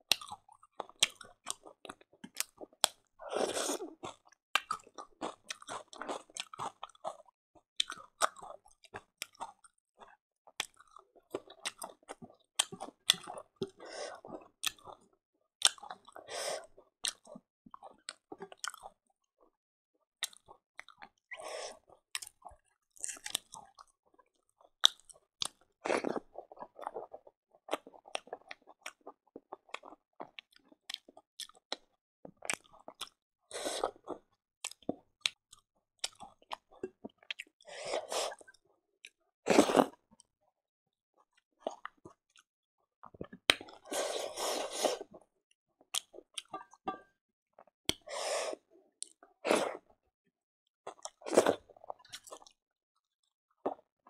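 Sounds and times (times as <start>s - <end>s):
person chewing and crunching: 0.1s - 16.3s, 20.2s - 38.5s, 45.9s - 49.8s, 50.8s - 52.6s.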